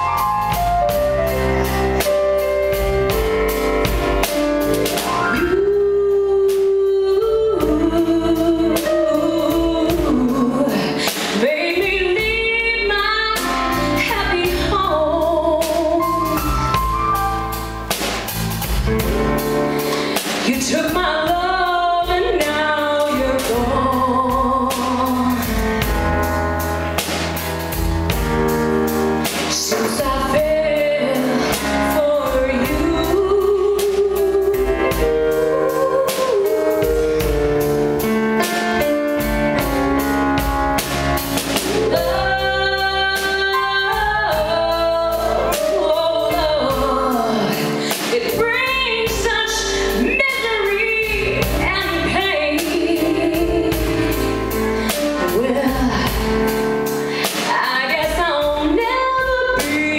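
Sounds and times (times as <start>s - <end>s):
live band with drums: 0.0s - 59.9s
woman singing a ballad: 5.2s - 16.8s, 19.8s - 26.0s, 29.3s - 37.3s, 41.6s - 59.9s.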